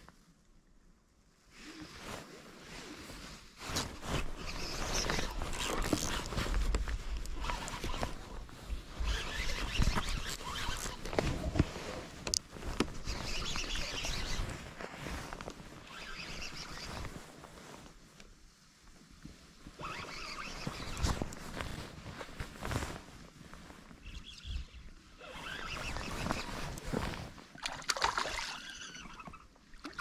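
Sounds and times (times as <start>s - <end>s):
fishing reel handling rustle: 3.7s - 17.4s, 19.8s - 22.5s, 23.3s - 29.4s.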